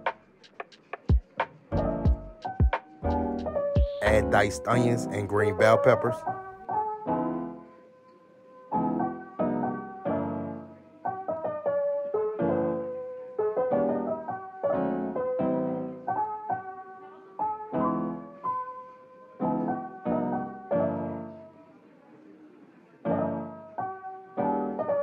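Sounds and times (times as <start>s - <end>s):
piano music: 0.0s - 0.2s, 1.7s - 21.6s, 23.1s - 25.0s.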